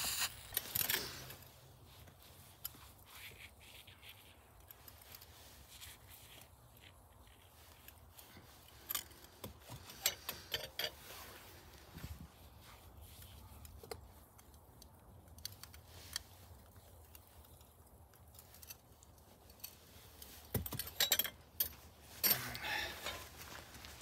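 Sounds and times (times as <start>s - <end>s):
light metallic clinks: 18.3s - 23.4s.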